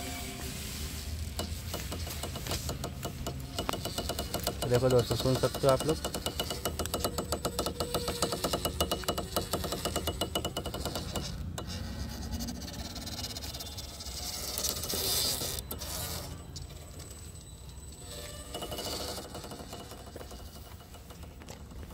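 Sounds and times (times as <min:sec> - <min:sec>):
drive belt ticking rapidly: 0:01.4 - 0:11.8.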